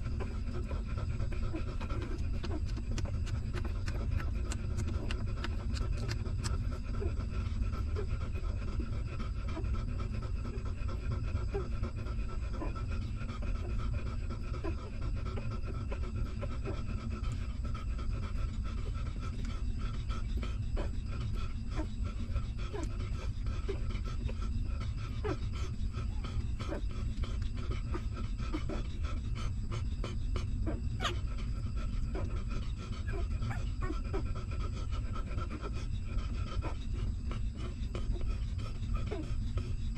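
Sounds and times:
dog panting: 0:00.0 - 0:39.9
low steady rumble: 0:00.0 - 0:39.9
puppies suckling wet clicks: 0:01.9 - 0:06.7.

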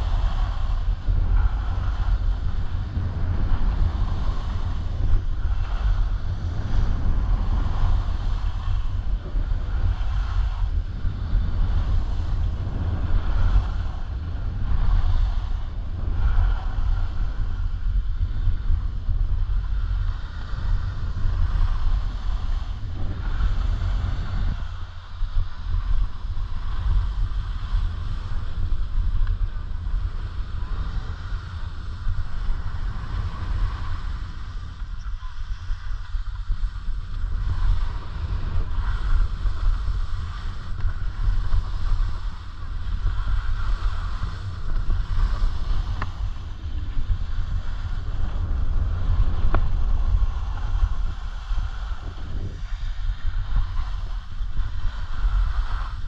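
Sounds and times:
skis sliding on snow: 0:00.0 - 0:56.0
wind buffeting microphone: 0:00.0 - 0:56.0.

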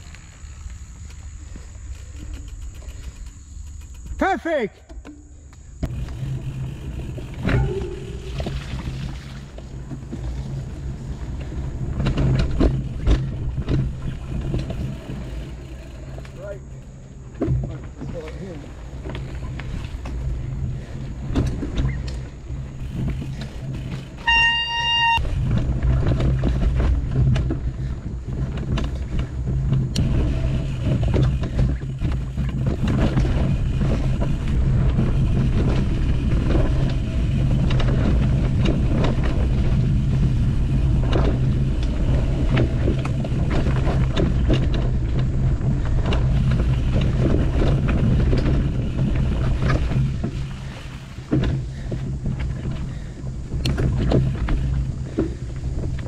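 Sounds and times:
bike rattling and clicking: 0:00.0 - 0:56.0
wind rumble on microphone: 0:05.7 - 0:56.0
short pitched tone: 0:24.2 - 0:25.2.

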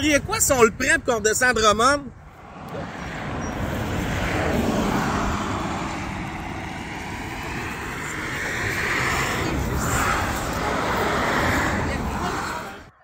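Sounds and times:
car tyre and road noise: 0:00.0 - 0:13.0
highway traffic: 0:00.0 - 0:13.0.

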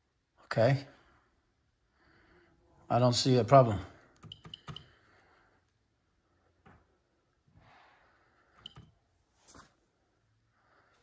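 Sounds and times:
taps on touchscreen: 0:04.2 - 0:04.9, 0:08.6 - 0:08.9.

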